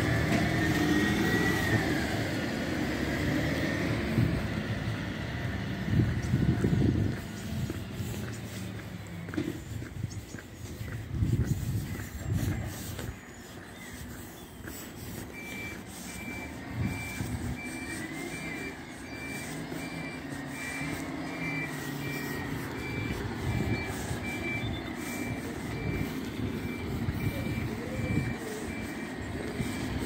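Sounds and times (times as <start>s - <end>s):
diesel engine running: 0.0s - 30.0s
reversing alarm beeping: 14.0s - 30.0s.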